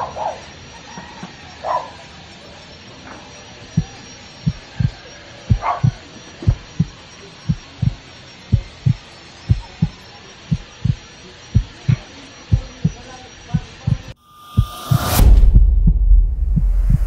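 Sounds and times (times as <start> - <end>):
heartbeat thumps: 3.7 - 11.0, 11.6 - 17.0.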